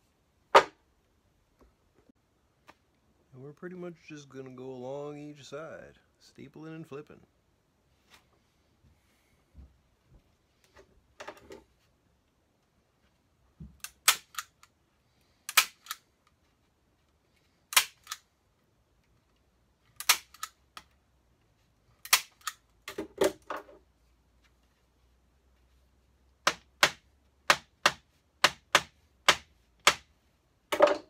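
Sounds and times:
staples driven into wood: 15.5 - 16.0, 26.5 - 30.1.

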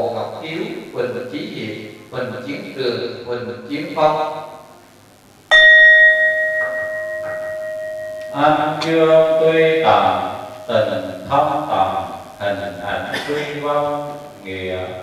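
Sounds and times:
man chanting: 0.0 - 4.5, 8.3 - 15.0
bowl bell ringing: 5.5 - 10.7.

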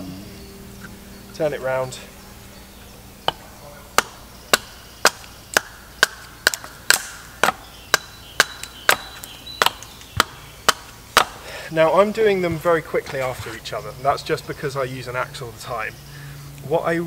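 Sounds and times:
axe chopping wood: 3.3 - 11.5.

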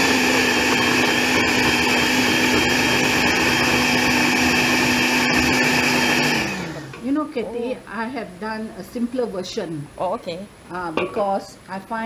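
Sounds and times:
blender motor whirring: 0.0 - 7.0.

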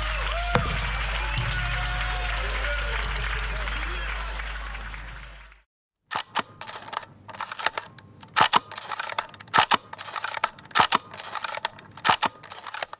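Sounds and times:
live room noise: 0.0 - 5.6.

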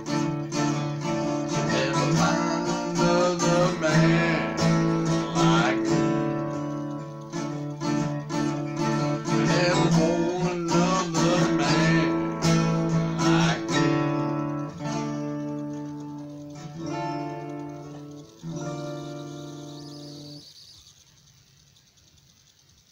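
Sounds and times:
acoustic guitar strumming: 0.0 - 20.8
man singing: 1.3 - 6.6, 9.0 - 14.3.

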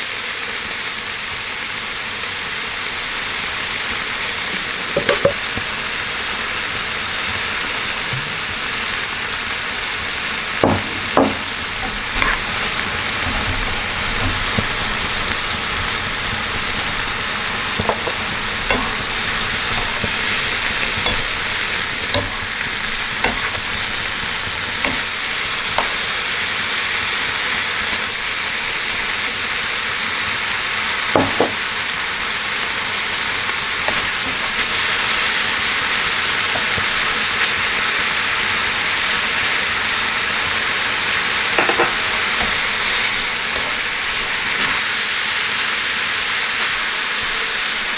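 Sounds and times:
vegetables sizzling in a frying pan: 0.0 - 47.9
spatula scraping a pan: 11.0 - 26.3.

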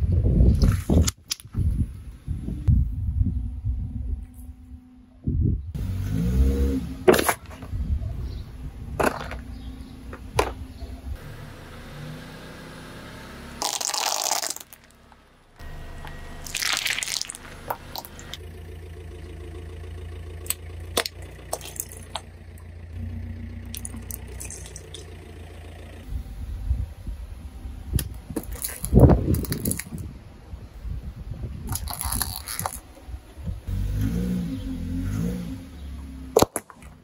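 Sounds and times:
car engine rumbling: 0.0 - 37.0
plastic whistles cracking under tyres: 9.0 - 10.6, 13.6 - 15.2, 20.4 - 22.7, 28.0 - 30.1, 31.6 - 33.0, 36.3 - 37.0
tyres squashing liquid-filled balls: 13.6 - 15.0, 16.4 - 18.4, 20.4 - 22.3, 23.6 - 25.1, 31.7 - 32.8, 36.3 - 37.0.

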